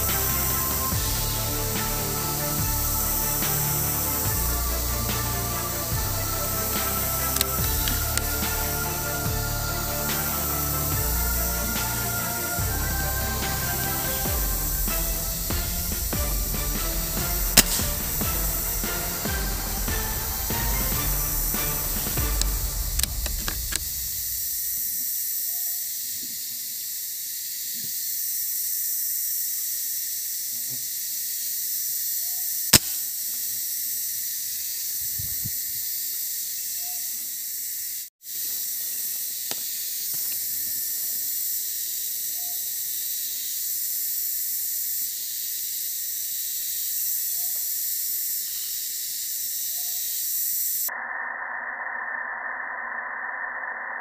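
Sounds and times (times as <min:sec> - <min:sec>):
steady high hiss: 0:00.0 - 0:50.9
sharp click: 0:32.8 - 0:33.0.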